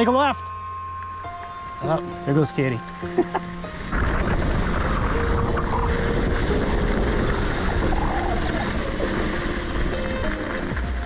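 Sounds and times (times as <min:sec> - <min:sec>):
bike tyres rolling on dirt: 0:02.2 - 0:11.0
wind rushing over microphone: 0:03.6 - 0:11.0.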